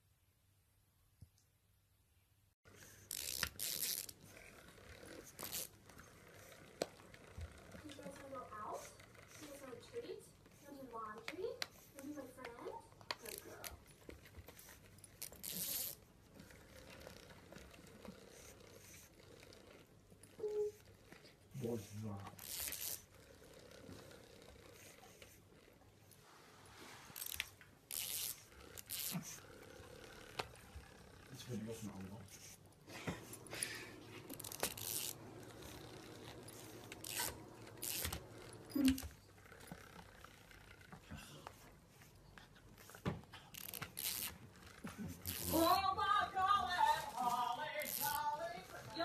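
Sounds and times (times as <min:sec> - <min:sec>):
dog chewing plush toy: 0:02.7 - 0:26.2, 0:27.0 - 0:49.0
fabric rubbing and ripping: 0:02.8 - 0:05.8, 0:15.2 - 0:16.0, 0:26.2 - 0:32.2, 0:33.3 - 0:39.1, 0:43.5 - 0:49.0.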